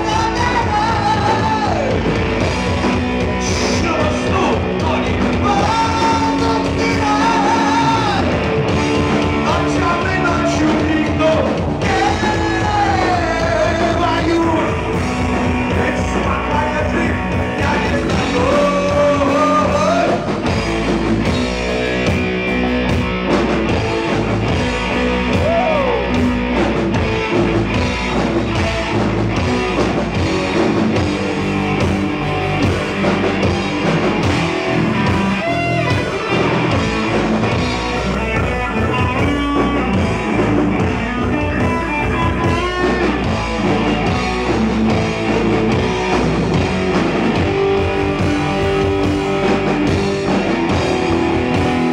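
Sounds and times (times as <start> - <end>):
man singing: 0.0 - 2.1, 3.3 - 8.4, 9.2 - 20.5
bass guitar: 0.0 - 51.9
drum kit beat: 0.0 - 51.9
electric guitar: 0.0 - 51.9.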